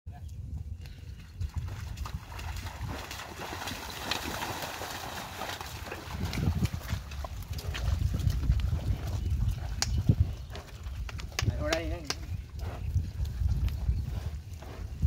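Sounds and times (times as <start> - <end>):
hooves plodding in mud: 0.1 - 15.0.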